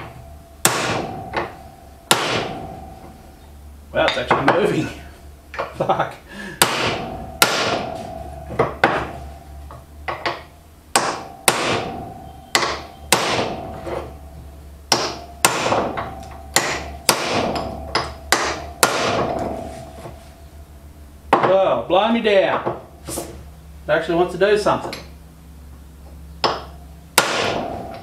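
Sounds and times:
hammer striking metal: 0.0s - 3.4s, 6.6s - 20.2s, 26.4s - 28.0s.

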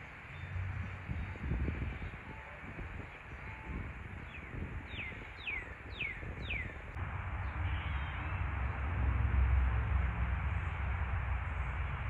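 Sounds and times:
low background rumble: 4.6s - 12.0s.

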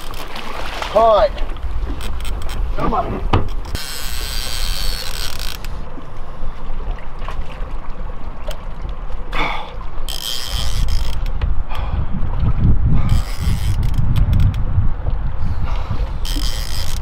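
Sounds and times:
wind on microphone: 0.6s - 7.0s, 10.4s - 17.0s
fishing reel ratchet buzzing: 3.6s - 5.7s, 10.1s - 11.3s, 13.1s - 14.0s, 16.2s - 17.0s.

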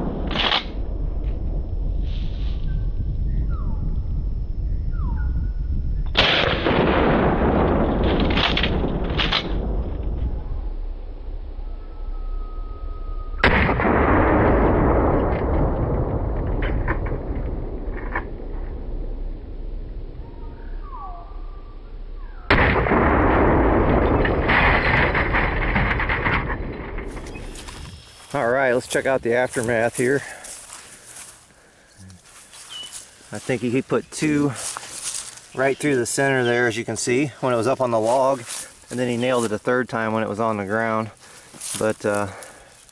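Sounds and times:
loud noise after shot: 6.1s - 10.9s, 11.6s - 28.2s
shotgun shot echoing: 6.2s - 9.7s, 13.4s - 15.5s, 22.5s - 25.4s.

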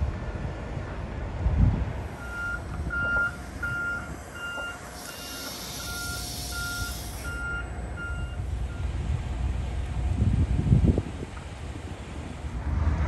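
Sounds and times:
low vehicle rumble: 0.0s - 13.0s
truck reversing alarm beeping: 2.1s - 9.0s
hiss: 4.8s - 7.6s.

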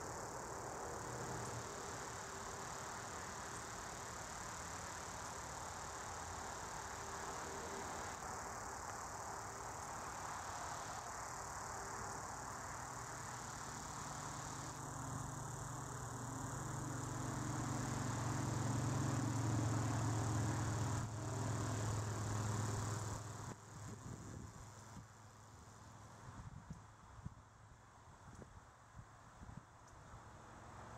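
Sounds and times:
vehicle engine hum passing: 14.0s - 23.6s.

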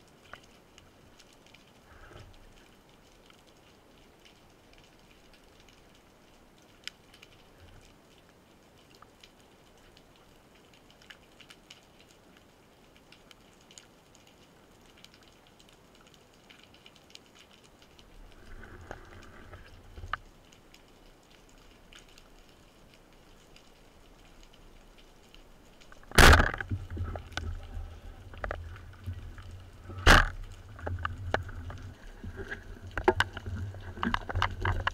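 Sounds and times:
speargun firing crack: 26.1s - 26.6s, 30.0s - 30.3s.

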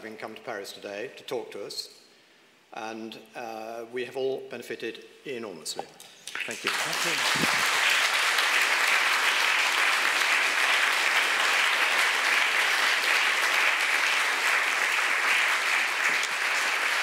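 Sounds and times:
audience applauding: 6.2s - 17.0s.

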